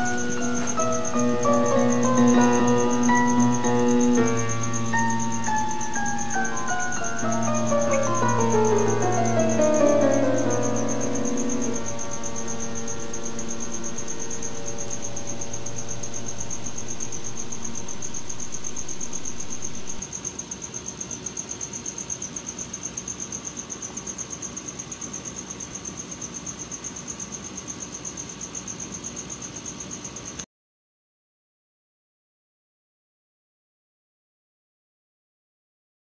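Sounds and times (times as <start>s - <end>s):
hiss with pulsing whine: 0.0s - 20.0s
piano music: 0.0s - 20.0s.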